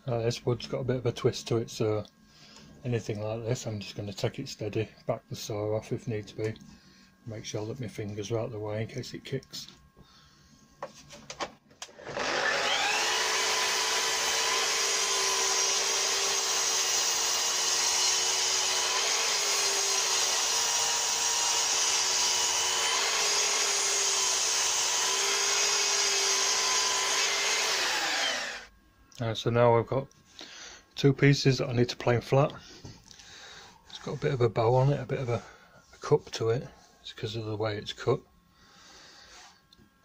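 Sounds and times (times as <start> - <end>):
mitre saw cutting wood: 11.9 - 28.7.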